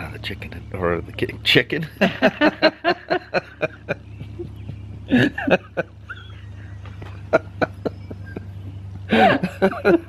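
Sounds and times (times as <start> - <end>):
steady low hum: 0.0 - 10.0
man and woman laughing: 1.8 - 10.0.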